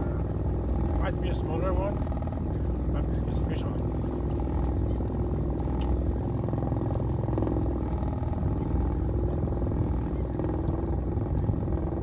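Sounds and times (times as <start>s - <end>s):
outboard motor running: 0.0s - 12.0s.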